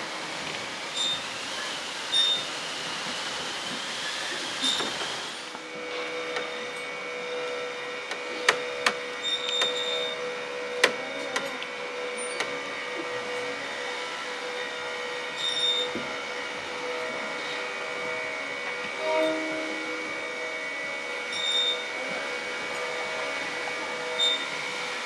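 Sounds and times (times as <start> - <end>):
drone of held tones: 16.8 - 24.7.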